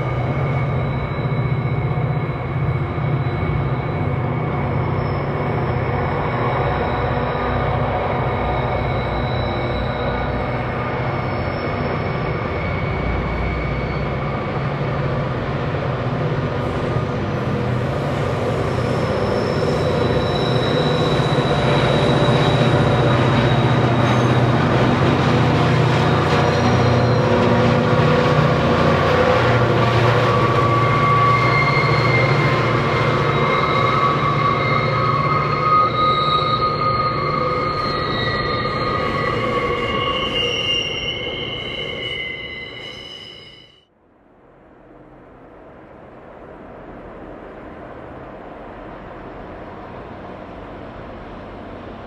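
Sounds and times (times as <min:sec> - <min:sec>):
wheel squeal: 0:00.0 - 0:15.2, 0:18.0 - 0:43.9
diesel locomotives working hard: 0:00.0 - 0:42.7.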